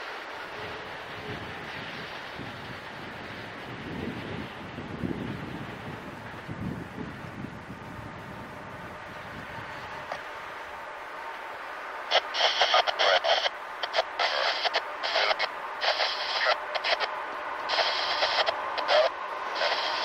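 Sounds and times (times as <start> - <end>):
crackling radio transmission: 11.4 - 20.0.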